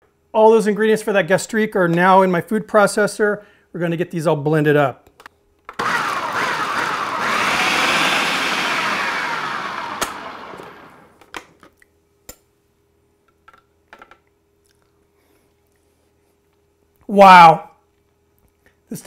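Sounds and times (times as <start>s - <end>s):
food processor motor: 5.8s - 11.2s.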